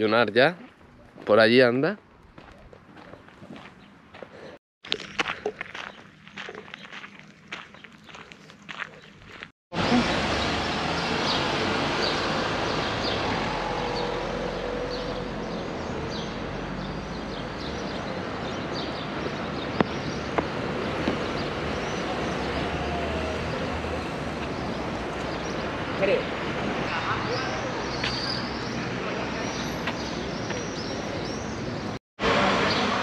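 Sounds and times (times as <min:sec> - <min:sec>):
passing traffic: 0:09.7 - 0:33.0.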